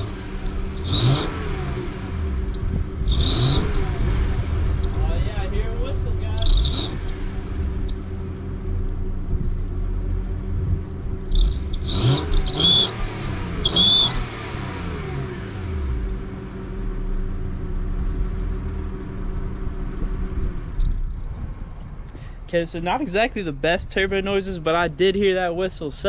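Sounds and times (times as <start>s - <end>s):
car engine revving: 0.0s - 21.7s
exhaust whistle: 11.2s - 14.6s.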